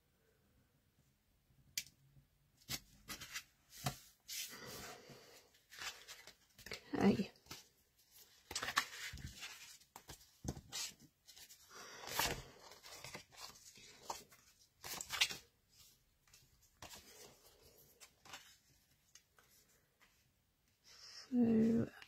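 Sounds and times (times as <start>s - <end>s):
paper rustling: 5.7s - 20.1s.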